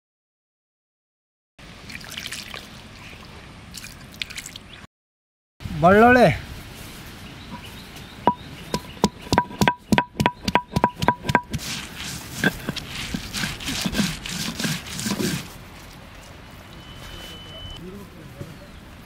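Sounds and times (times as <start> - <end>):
stone roller knocking on stone: 8.3 - 11.6
garlic crushing and scraping on stone: 8.7 - 15.5.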